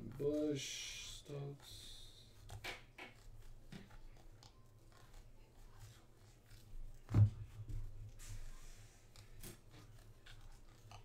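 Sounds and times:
cards flicking and sliding: 0:02.5 - 0:03.9
thump: 0:07.1 - 0:07.5.

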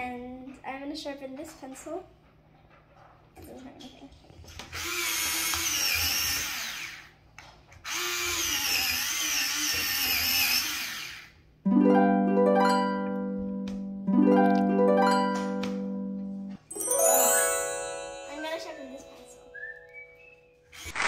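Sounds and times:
electric pencil sharpener grinding: 0:04.7 - 0:07.1, 0:07.8 - 0:11.4
plucked harp-like chime: 0:11.7 - 0:20.2.

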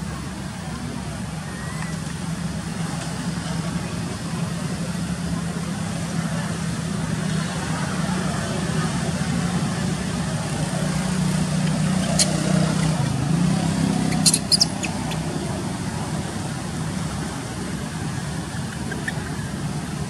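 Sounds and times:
vehicle engine idling: 0:00.0 - 0:20.0
short high squeaks: 0:12.0 - 0:12.9, 0:14.0 - 0:15.4, 0:18.4 - 0:19.6.

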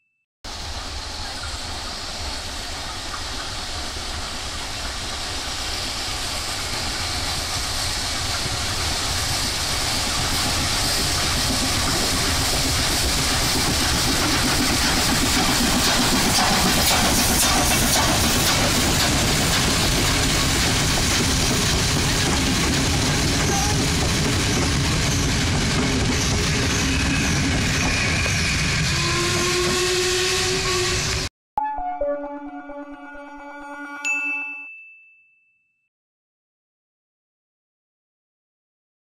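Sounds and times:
steam train approaching: 0:00.5 - 0:31.3
sharp clicks of passing train: 0:06.8 - 0:26.8.

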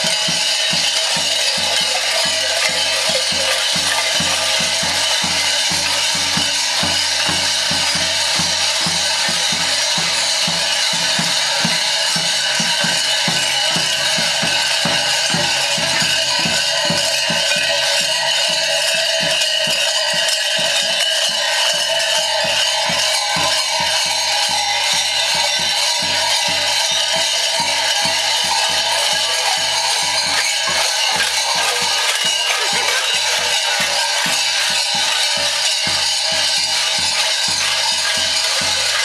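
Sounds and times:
large bells jangling: 0:00.0 - 0:39.0.

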